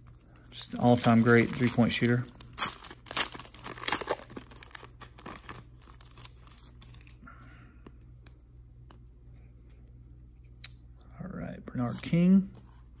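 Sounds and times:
foil wrapper crinkling and tearing: 0:00.6 - 0:07.2.

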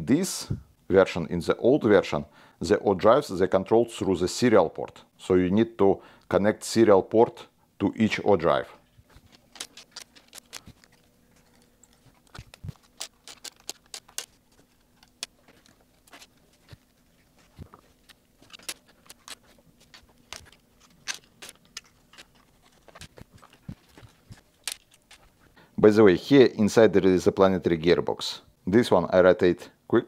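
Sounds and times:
faint steady hum: 0:00.0 - 0:30.0
plastic parts clicking and knocking: 0:09.3 - 0:16.8.

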